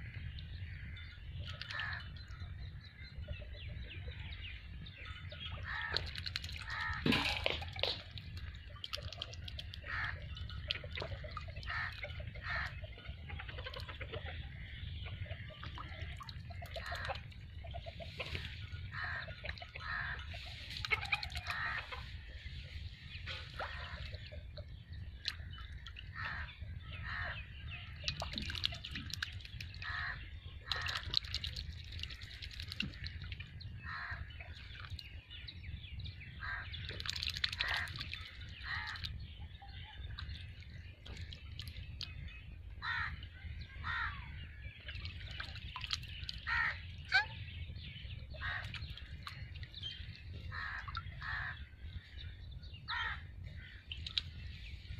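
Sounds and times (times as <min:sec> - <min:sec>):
ducks dabbling in water: 0:00.0 - 0:54.9
harsh bird calls: 0:32.8 - 0:54.9.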